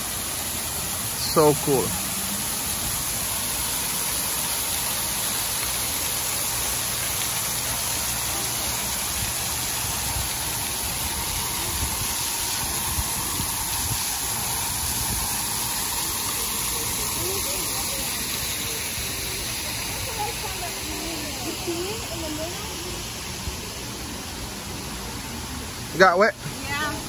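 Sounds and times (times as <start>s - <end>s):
fountain water splashing on paving: 0.0s - 27.0s.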